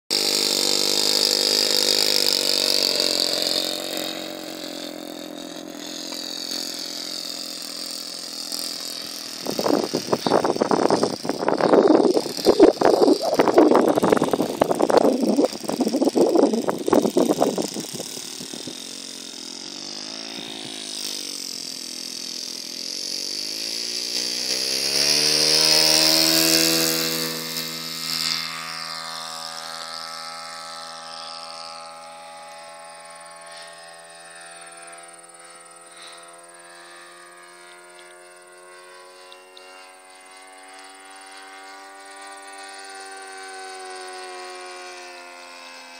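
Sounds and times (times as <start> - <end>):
model plane engine running: 0.1 - 45.9
loud noisy rumble: 9.1 - 18.9.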